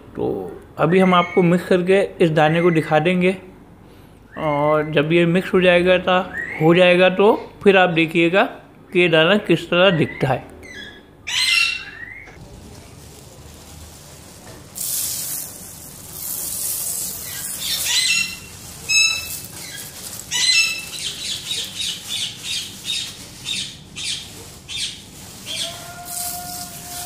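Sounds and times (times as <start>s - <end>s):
parrots squawking: 9.9s - 12.4s, 16.0s - 27.0s
seeds poured into plastic tub: 12.4s - 20.9s, 25.2s - 27.0s.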